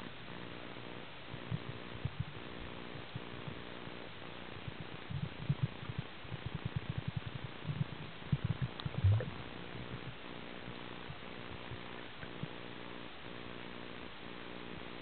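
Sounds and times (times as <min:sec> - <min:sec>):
muffled underwater knocks and rumbling: 0:04.6 - 0:10.2.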